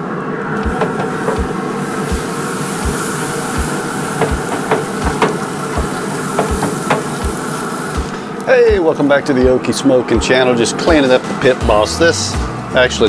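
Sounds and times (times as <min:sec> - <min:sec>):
sharp knocks on grate: 0:00.6 - 0:02.2, 0:04.2 - 0:07.4
block scraping grill grates: 0:00.6 - 0:09.9.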